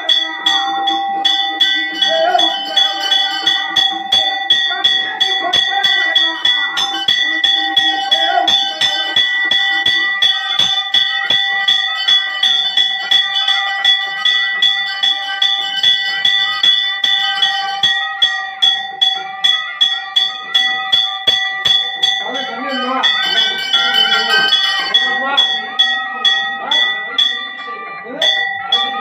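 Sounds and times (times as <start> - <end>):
temple bell ringing: 0.0 - 29.0.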